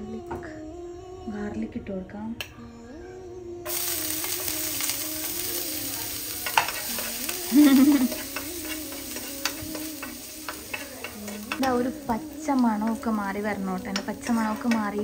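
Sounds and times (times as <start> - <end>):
garlic sizzling in butter: 3.7 - 15.0
metal spoon clicking against pan: 6.4 - 7.4, 8.1 - 11.9.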